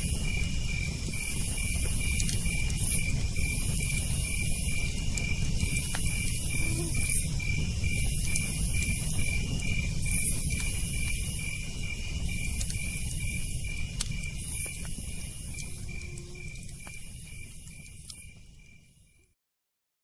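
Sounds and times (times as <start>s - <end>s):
insect buzzing: 0.0s - 18.3s
sharp crackles: 0.0s - 19.3s
cricket chirping: 0.0s - 19.4s.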